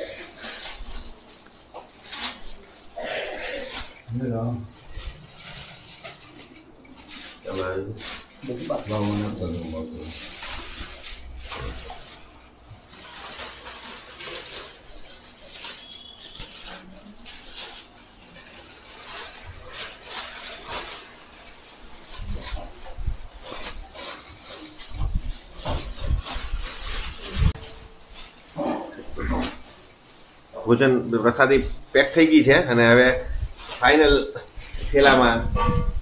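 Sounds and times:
plastic bags rustling and crinkling: 0:00.0 - 0:36.0.

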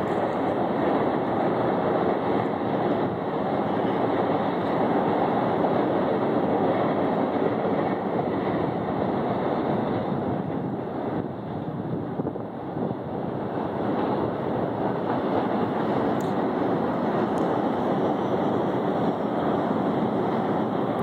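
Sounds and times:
freight train rumbling on rails: 0:00.0 - 0:21.0.

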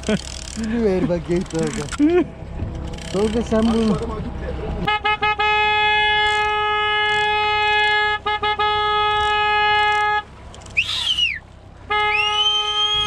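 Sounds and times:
boat horn blasts: 0:04.8 - 0:13.0
high whistle rising and falling: 0:12.1 - 0:13.0.

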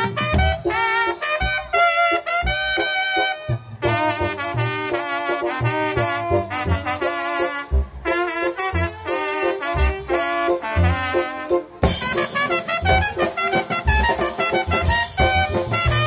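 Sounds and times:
low drum beat: 0:00.0 - 0:01.8, 0:11.8 - 0:16.0
saxophone melody with vibrato: 0:00.0 - 0:16.0.

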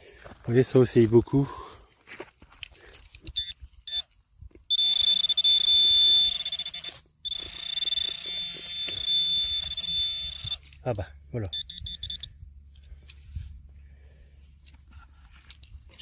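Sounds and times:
metal detector beeps: 0:03.2 - 0:12.5
metal detector long tone: 0:03.3 - 0:13.4.

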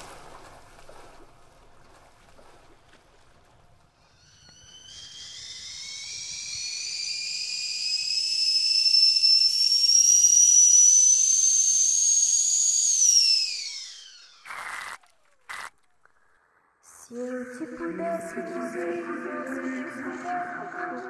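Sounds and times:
high whistling tone rising in pitch: 0:04.2 - 0:14.7.

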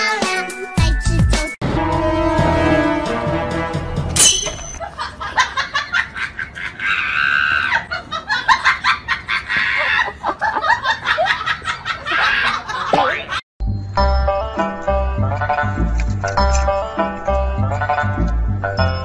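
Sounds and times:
person laughing: 0:04.8 - 0:13.4.

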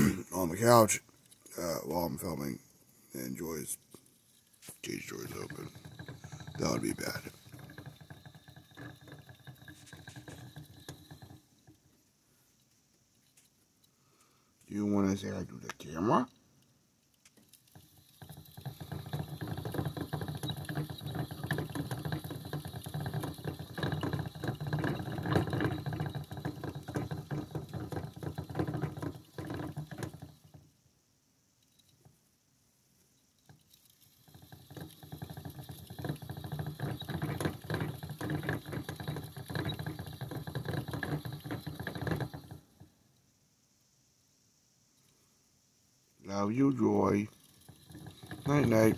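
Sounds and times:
hamster wheel rattling: 0:03.2 - 0:13.6, 0:17.0 - 0:30.8, 0:33.2 - 0:43.0, 0:46.3 - 0:48.9.

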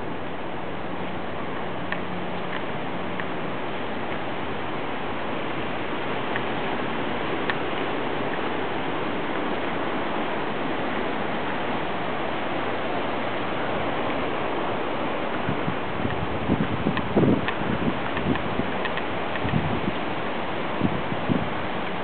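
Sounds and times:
wind and rain rushing: 0:00.0 - 0:22.0
faint ticks: 0:16.9 - 0:19.6.

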